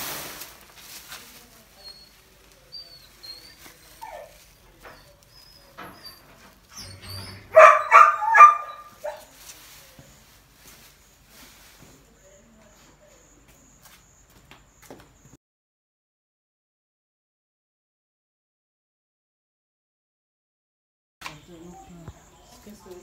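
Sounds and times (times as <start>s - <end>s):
dog barking: 7.4s - 9.3s.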